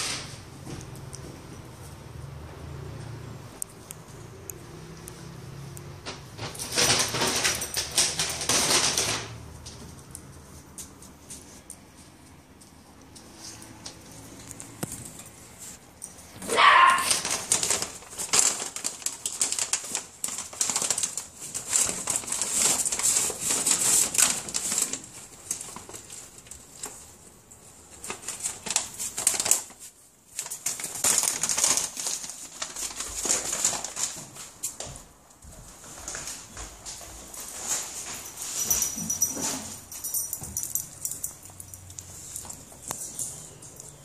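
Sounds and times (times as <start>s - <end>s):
shopping bag rustling and crinkling: 6.0s - 10.0s, 16.4s - 44.0s.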